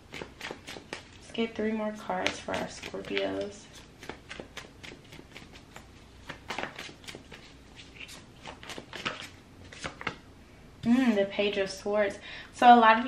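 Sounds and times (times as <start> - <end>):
cards being shuffled: 0.0 - 1.3, 2.0 - 10.2.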